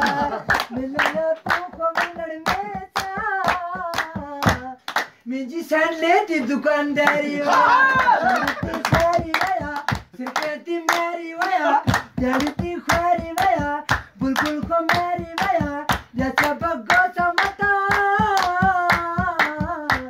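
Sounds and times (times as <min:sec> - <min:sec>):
hands drumming on plastic container: 0:00.0 - 0:04.7, 0:08.4 - 0:10.4, 0:11.4 - 0:20.0
hand clapping: 0:00.0 - 0:05.2, 0:06.3 - 0:20.0
man singing: 0:00.0 - 0:20.0.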